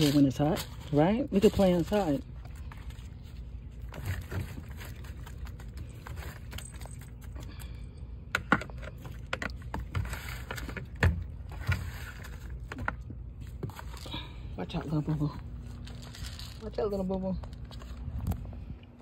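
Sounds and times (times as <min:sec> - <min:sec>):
hand cultivator scraping mulch: 0:00.0 - 0:02.2.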